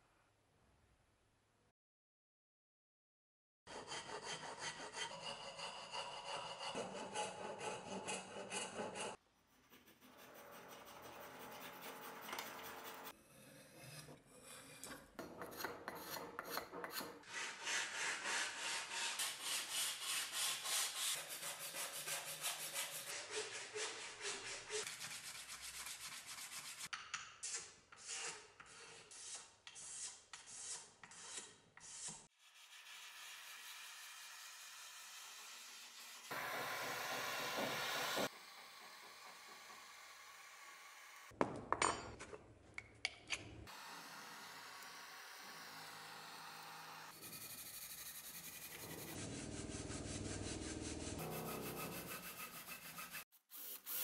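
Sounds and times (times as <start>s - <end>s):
file and sandpaper scraping wood: 3.7s - 38.4s, 47.1s - 54.0s.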